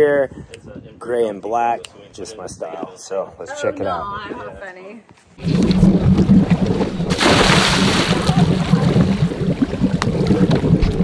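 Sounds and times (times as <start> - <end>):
water rushing past hull: 5.4 - 11.0.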